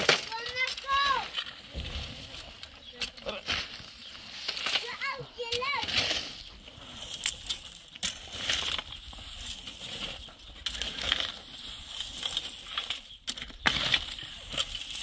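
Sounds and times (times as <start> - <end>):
shovels digging stony soil: 0.0 - 15.0.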